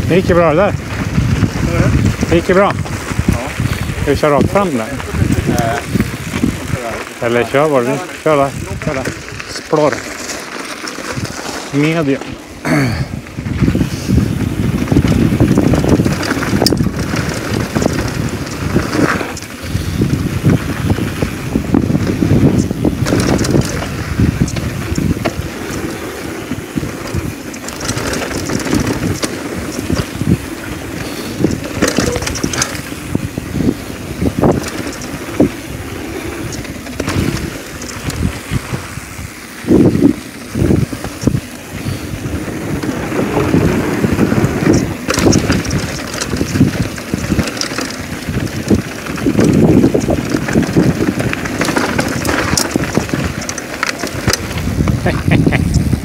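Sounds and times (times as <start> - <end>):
wind on microphone: 0.0 - 9.8, 10.6 - 56.0
bike rattling and knocking: 0.0 - 56.0
tyres rumbling over gravel: 0.0 - 56.0.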